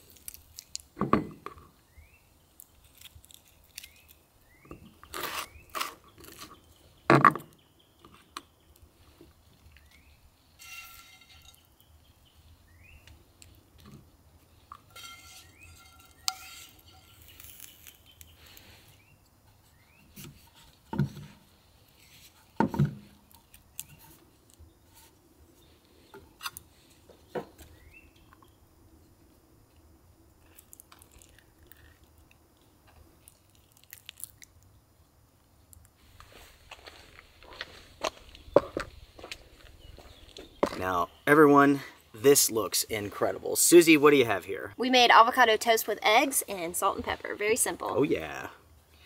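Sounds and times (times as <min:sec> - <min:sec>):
utensils scraping on plates: 0:10.6 - 0:11.6, 0:14.9 - 0:17.7.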